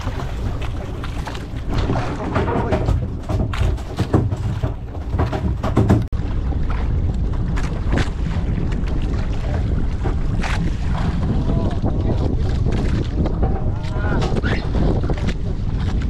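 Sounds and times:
knocks and clatter: 0:00.0 - 0:06.2
wind buffeting microphone: 0:00.0 - 0:16.0.

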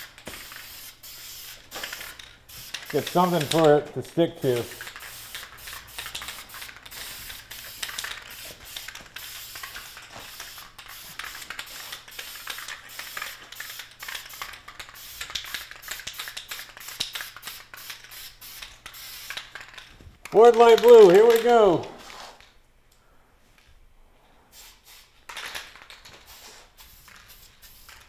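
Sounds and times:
aerosol spray bursts: 0:00.0 - 0:03.8, 0:04.4 - 0:19.5, 0:24.5 - 0:25.1, 0:26.2 - 0:28.0.

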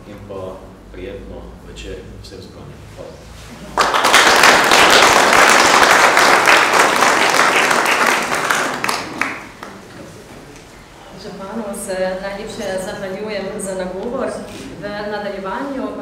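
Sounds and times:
audience applauding: 0:03.7 - 0:09.9.

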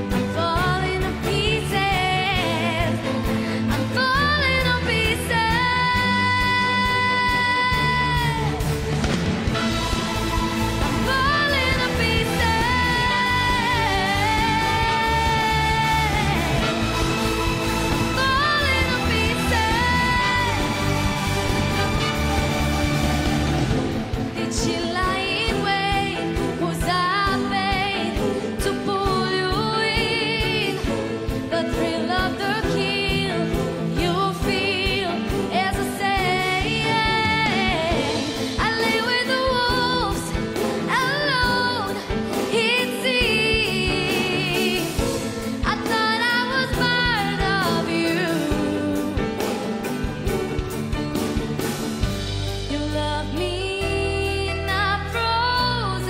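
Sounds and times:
keyboard and orchestral accompaniment: 0:00.0 - 0:56.0
woman singing pop ballad: 0:00.1 - 0:08.7, 0:10.9 - 0:17.0, 0:18.1 - 0:21.1, 0:24.3 - 0:49.6, 0:52.6 - 0:56.0.

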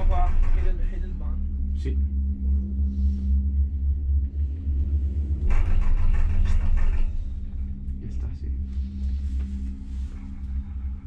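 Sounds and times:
harsh rattling: 0:00.0 - 0:01.7, 0:05.3 - 0:08.8
gondola cabin rumble: 0:00.0 - 0:11.0.

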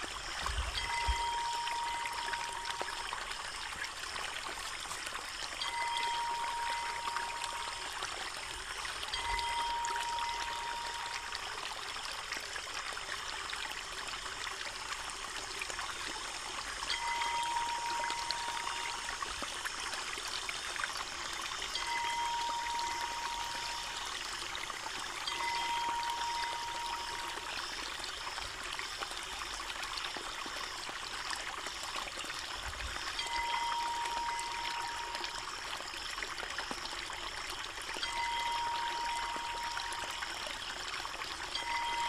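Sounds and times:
thin even tone: 0:00.6 - 0:03.2, 0:05.6 - 0:08.1, 0:08.9 - 0:11.6, 0:16.9 - 0:19.4, 0:21.4 - 0:28.2, 0:33.1 - 0:35.7, 0:38.0 - 0:40.5, 0:41.4 - 0:42.0.

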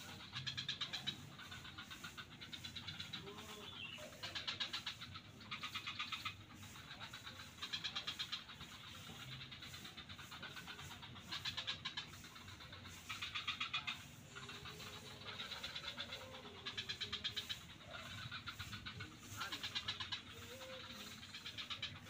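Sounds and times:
frog background chorus: 0:00.0 - 0:22.0
frogs rattling calls: 0:00.0 - 0:22.0.

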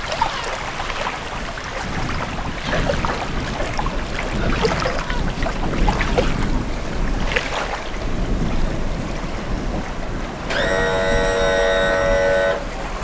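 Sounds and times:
wind buffeting microphone: 0:00.0 - 0:13.0
loud horn chord: 0:10.5 - 0:12.9.

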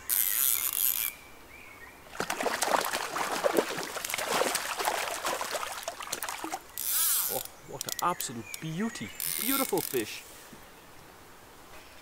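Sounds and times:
fish splashing at surface: 0:02.1 - 0:06.7.

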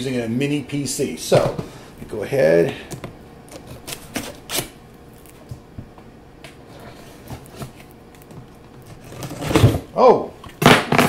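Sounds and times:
knife cutting packing tape: 0:03.5 - 0:05.3.

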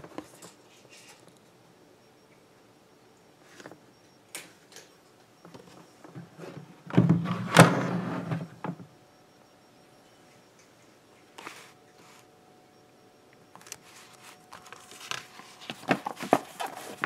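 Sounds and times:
rubbing and shuffling: 0:11.4 - 0:12.3, 0:13.6 - 0:17.0.

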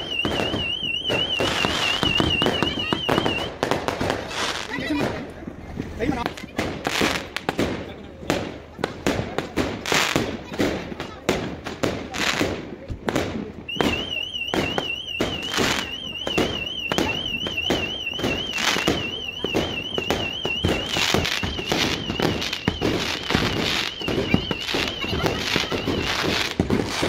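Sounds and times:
fireworks bangs and crackling: 0:00.0 - 0:27.0
high fast-warbling tone: 0:14.0 - 0:26.6.

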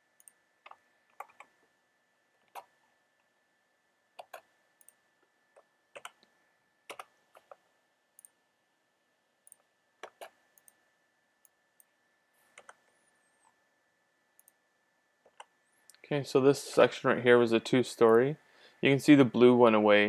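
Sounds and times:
faint high whine: 0:00.0 - 0:20.0
computer mouse clicking: 0:00.2 - 0:01.6, 0:02.4 - 0:02.8, 0:04.2 - 0:06.3, 0:06.9 - 0:07.6, 0:08.2 - 0:08.4, 0:09.4 - 0:10.8, 0:12.5 - 0:13.6, 0:14.4 - 0:14.6, 0:15.2 - 0:16.0.

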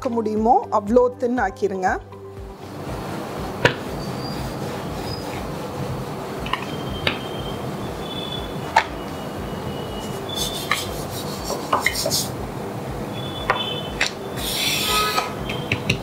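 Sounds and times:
dough rubbing on countertop: 0:04.1 - 0:05.8, 0:10.0 - 0:12.4.

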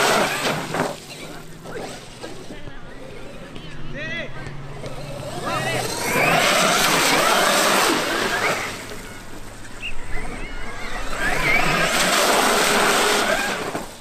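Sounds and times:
electric motor whine: 0:04.8 - 0:14.0.

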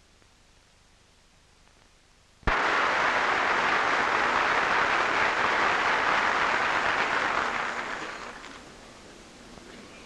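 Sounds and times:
crowd applauding: 0:02.5 - 0:08.6.

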